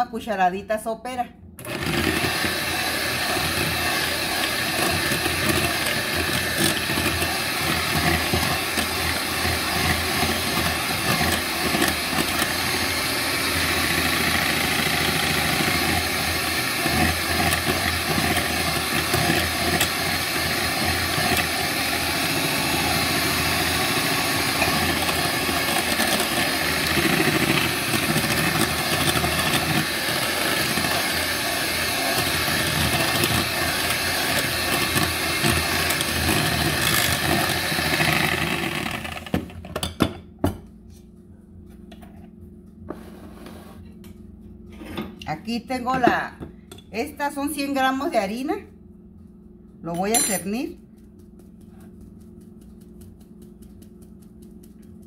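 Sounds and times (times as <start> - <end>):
electric hand mixer whirring: 1.6 - 39.6.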